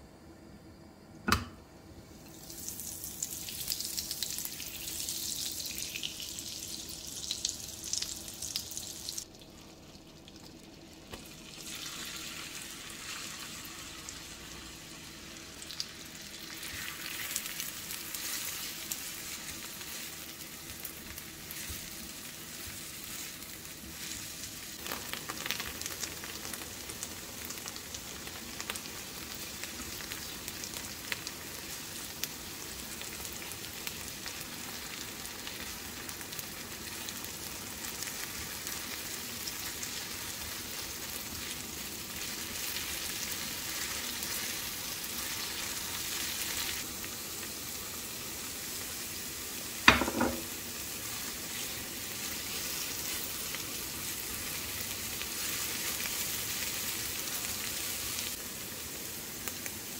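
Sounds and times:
sizzling in a frying pan: 2.1 - 59.9
spatula stirring onions: 49.6 - 58.0
sharp knock: 49.9 - 50.5.

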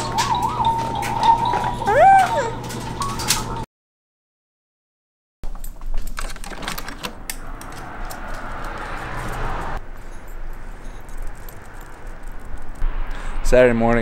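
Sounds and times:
front door opening clicks and rattles: 5.5 - 8.2
steady rushing noise: 7.3 - 14.0.

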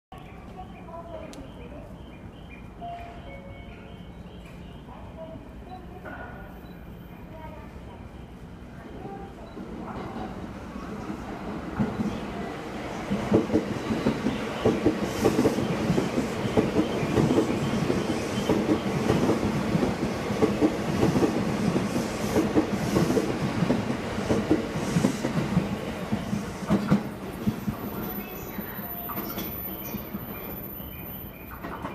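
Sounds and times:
train wheels rumbling on rail: 7.2 - 31.9.

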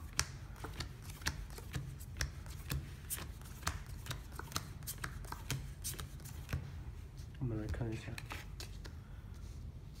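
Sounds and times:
playing cards dealt on felt: 0.0 - 7.4.

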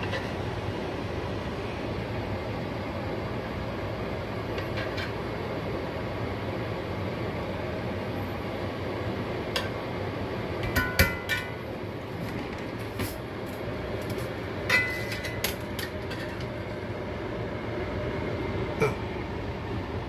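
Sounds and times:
steady low hum: 0.0 - 20.0
utensils clinking on pan: 10.6 - 11.6, 14.7 - 16.5.

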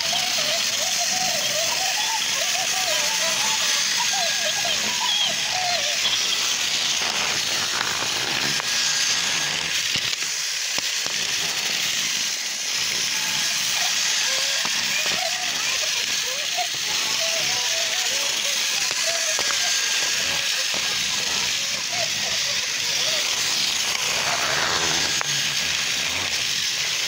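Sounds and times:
toy train motor whirring: 0.0 - 27.0
high wavering voice: 13.1 - 26.4.

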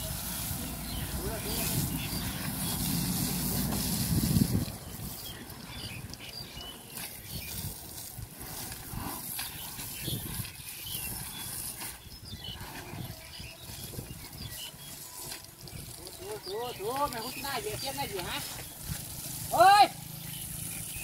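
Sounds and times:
water hose spraying: 0.0 - 21.0.

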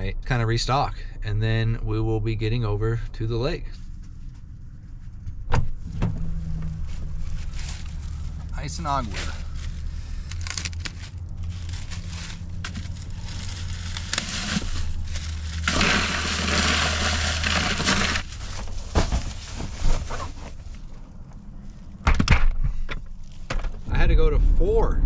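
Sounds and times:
steady low hum: 0.0 - 25.0
bagged ice crunching: 7.1 - 20.8.

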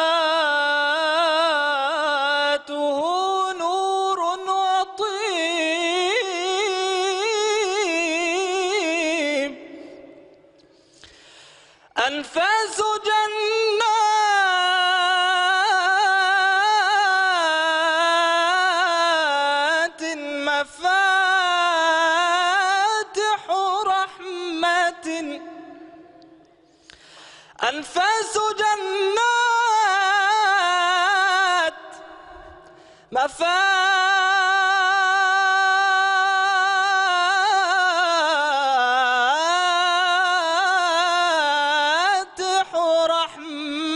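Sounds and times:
man chanting unaccompanied: 12.0 - 26.3, 27.6 - 43.9.

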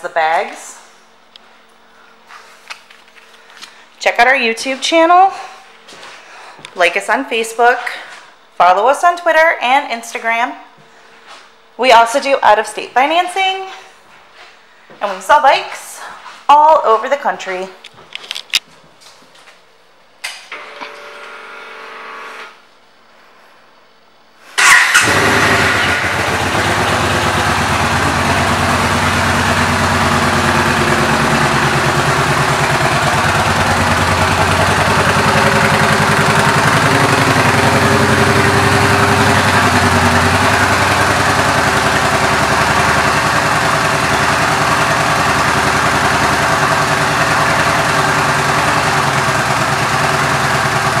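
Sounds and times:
motorcycle engine idling: 24.6 - 51.0.

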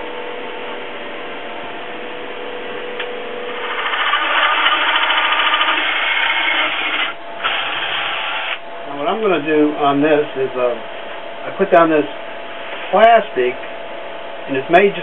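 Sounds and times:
steady background hum: 0.0 - 15.0
drill hole saw cutting wood: 3.6 - 8.6.

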